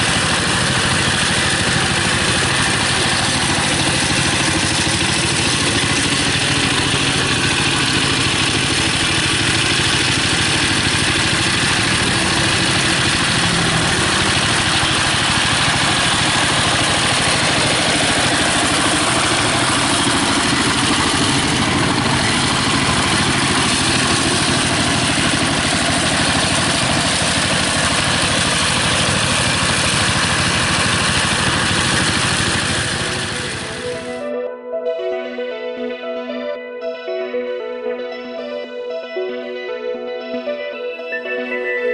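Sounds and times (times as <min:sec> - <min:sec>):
diesel engine running under load: 0:00.0 - 0:34.2.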